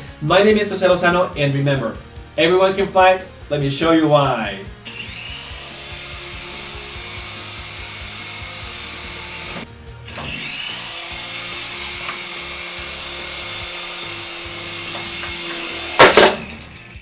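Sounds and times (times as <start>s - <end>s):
toy helicopter rotors whirring: 4.8s - 17.0s.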